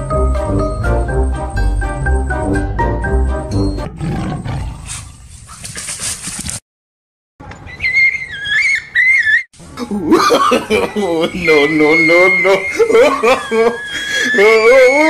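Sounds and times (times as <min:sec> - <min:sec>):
tiger roar sound effect: 0:03.8 - 0:05.2
high wavering cry: 0:07.7 - 0:09.5, 0:10.9 - 0:15.0.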